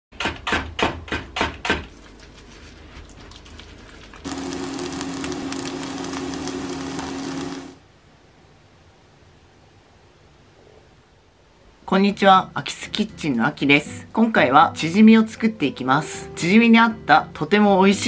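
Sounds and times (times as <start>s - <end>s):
pancake sizzling in frying pan: 4.2s - 7.8s.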